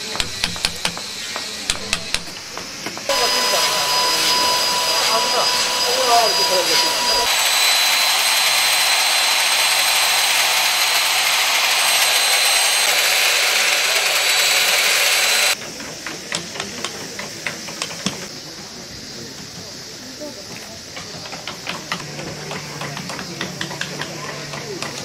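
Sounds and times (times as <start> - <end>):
electric power tool on wood: 0.0 - 15.6.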